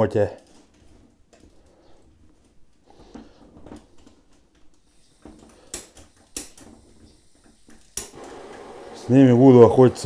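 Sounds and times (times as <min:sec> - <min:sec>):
piezo igniter clicks: 0:07.4 - 0:08.2.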